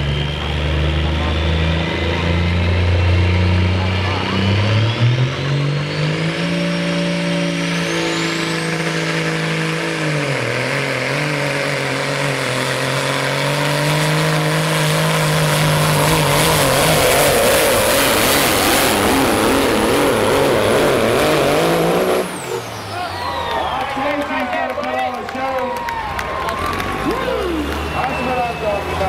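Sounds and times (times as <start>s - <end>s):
diesel truck engine at full throttle: 0.0s - 29.0s
rushing noise of spinning tyres: 0.0s - 29.0s
rising whistle: 22.4s - 24.4s, 25.8s - 29.0s.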